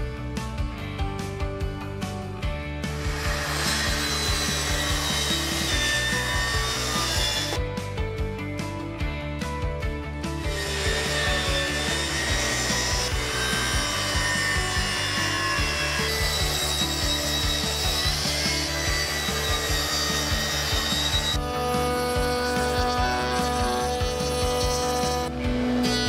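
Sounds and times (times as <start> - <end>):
track saw cutting wood: 2.8 - 7.8, 10.2 - 26.0.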